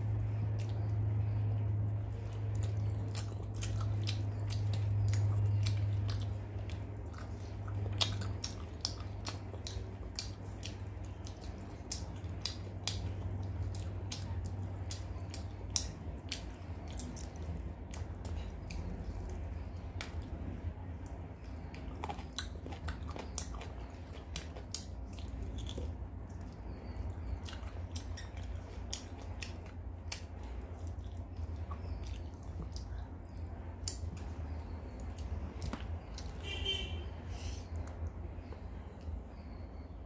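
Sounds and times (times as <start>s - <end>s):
chewing with wet mouth clicks: 0.0s - 36.8s, 37.7s - 39.5s
low steady hum: 0.0s - 40.0s.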